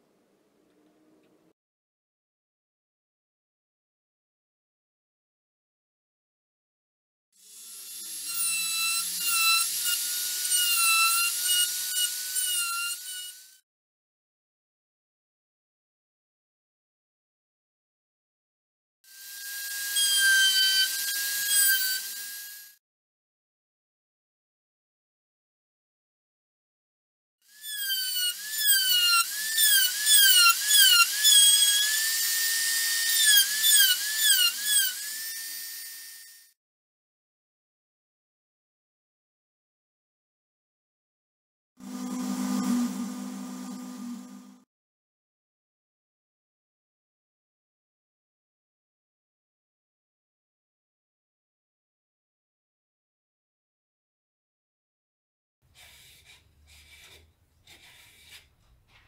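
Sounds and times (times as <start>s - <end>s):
rotary tool grinding wood: 19.1s - 22.8s, 27.5s - 36.5s, 41.8s - 44.6s, 55.7s - 59.0s.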